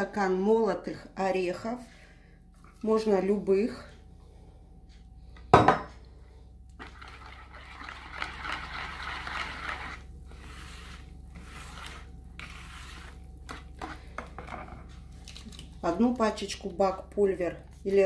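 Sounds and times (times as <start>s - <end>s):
wire whisk stirring batter in bowl: 6.8s - 18.0s.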